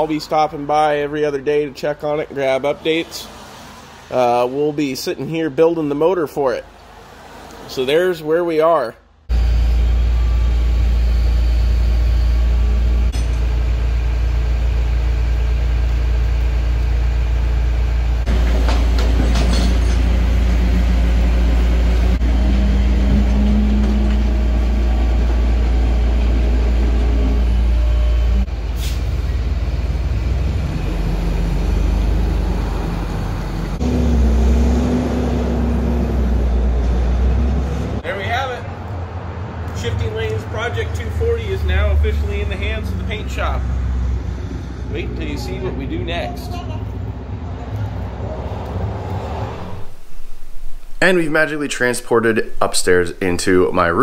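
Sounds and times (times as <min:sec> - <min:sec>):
truck engine running: 0:09.3 - 0:38.2, 0:39.7 - 0:48.9
metal clanking and rattling: 0:13.1 - 0:13.7, 0:18.3 - 0:20.4.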